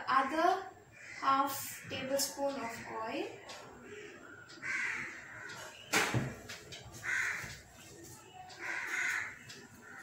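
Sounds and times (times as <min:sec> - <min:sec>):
crow cawing: 0:00.9 - 0:03.2, 0:03.8 - 0:05.7, 0:07.0 - 0:07.6, 0:08.5 - 0:10.0
sharp knock: 0:05.9 - 0:06.4.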